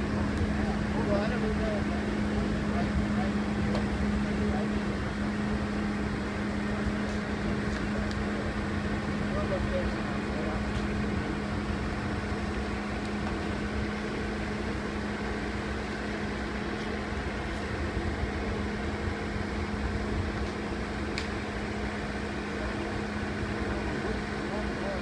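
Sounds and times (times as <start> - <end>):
steady machinery hum: 0.0 - 25.0.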